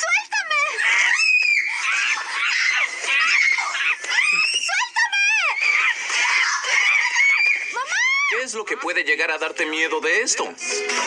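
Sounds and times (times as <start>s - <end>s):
girl screaming: 0.7s - 8.4s.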